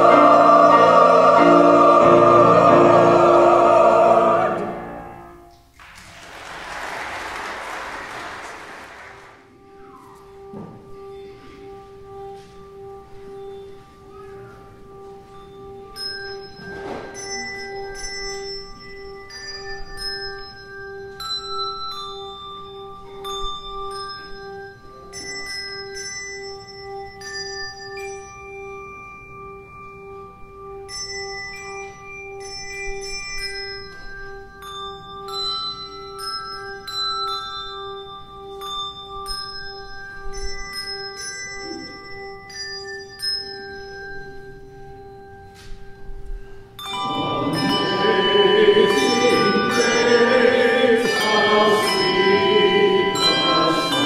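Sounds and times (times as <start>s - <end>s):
handbells ringing a melody: 9.6s - 54.0s
held low tone: 46.0s - 54.0s.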